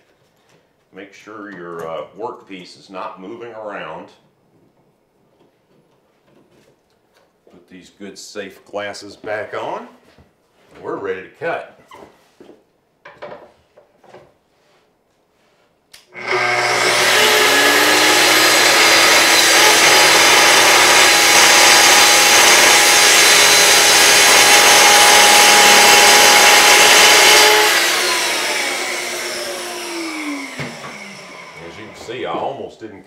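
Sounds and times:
circular saw cutting wood: 16.1s - 32.8s.

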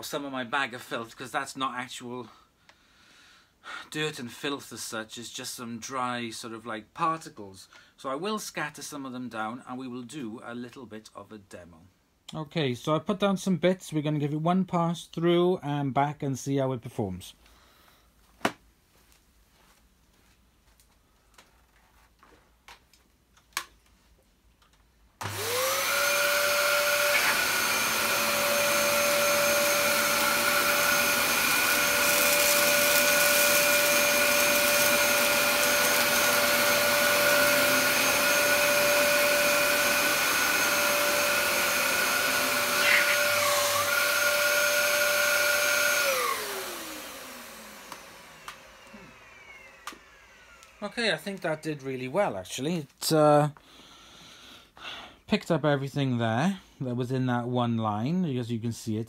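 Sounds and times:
vacuum cleaner motor whine: 25.2s - 51.6s.

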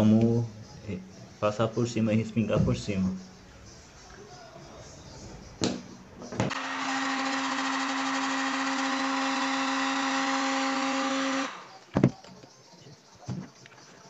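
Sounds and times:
heat gun fan blowing: 6.5s - 11.8s.

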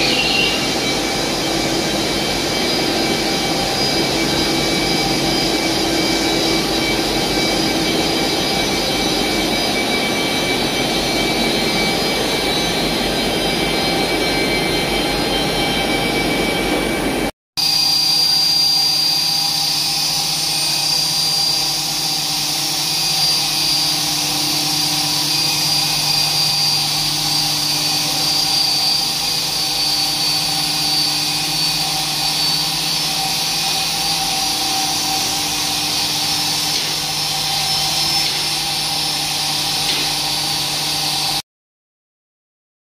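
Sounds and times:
winders whining: 0.0s - 17.3s.

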